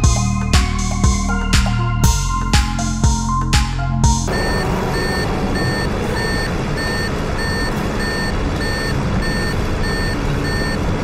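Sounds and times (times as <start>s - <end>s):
aircraft engine drone: 4.3s - 8.5s
short high electronic beeps: 4.3s - 10.8s.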